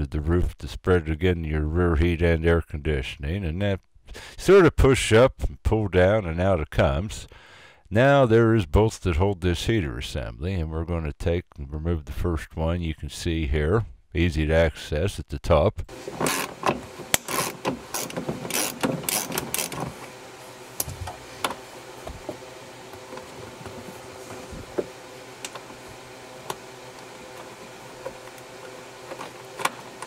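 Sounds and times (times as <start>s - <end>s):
ratchet clicking: 17.1s - 19.8s.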